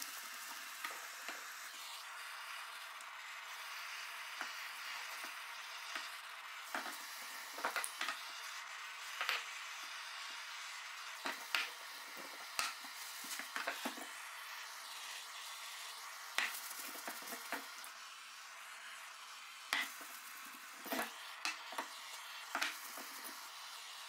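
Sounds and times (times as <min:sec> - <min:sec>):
butane torch hissing: 0:00.0 - 0:24.0.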